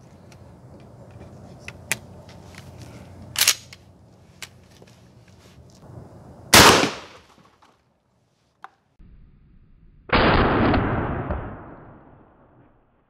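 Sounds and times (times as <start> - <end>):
shotgun blast: 6.5 - 7.2, 10.1 - 12.1
sharp gunshot crack: 6.5 - 7.3, 10.1 - 12.1.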